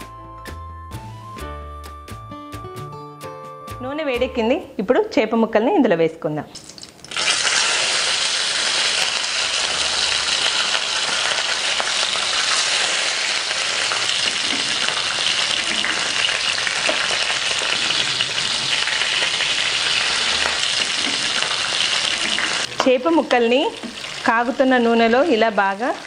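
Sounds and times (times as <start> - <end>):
fish sizzling in hot oil: 6.6 - 26.0.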